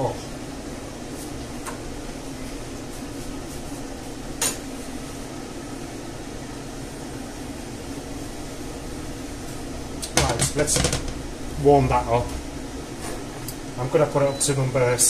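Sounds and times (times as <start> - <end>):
extractor fan humming: 0.0 - 15.0
frying pan knock on hob: 10.2 - 11.2.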